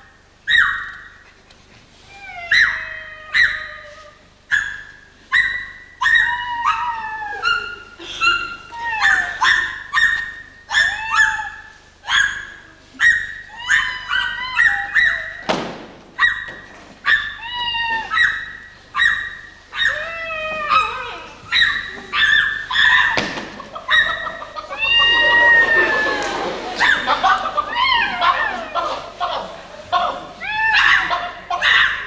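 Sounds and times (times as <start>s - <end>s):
animal-like yelping cries: 2.1s - 15.5s, 16.2s - 29.1s, 29.9s - 32.0s.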